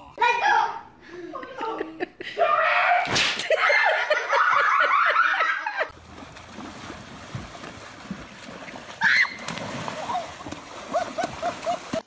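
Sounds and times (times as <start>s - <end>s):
horses splashing through water: 5.9s - 12.0s.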